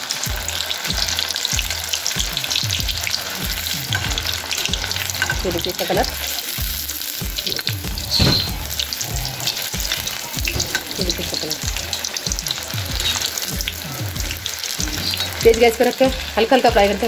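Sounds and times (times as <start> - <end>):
food sizzling in hot oil: 0.0 - 17.0
skimmer scraping against pan: 7.4 - 16.6.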